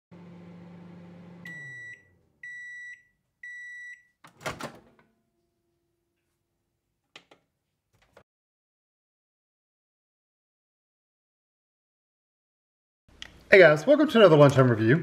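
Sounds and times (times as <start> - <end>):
microwave oven humming: 0.1 - 3.6.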